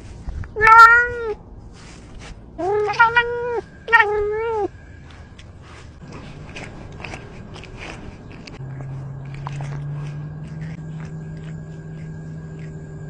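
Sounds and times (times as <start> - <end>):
rustling of grass and fur: 0.0 - 12.7
low steady hum: 0.0 - 13.0
cat meowing: 0.6 - 1.4, 2.6 - 4.7.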